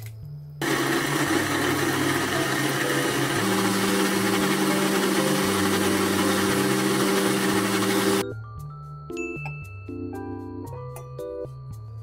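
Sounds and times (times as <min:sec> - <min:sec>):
food processor grinding: 0:00.6 - 0:08.2.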